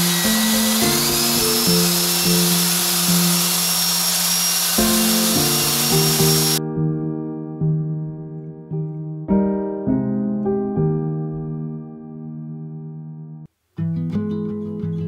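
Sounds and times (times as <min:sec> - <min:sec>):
electric paddle mixer whirring: 0:00.0 - 0:06.6
background music: 0:04.8 - 0:15.0.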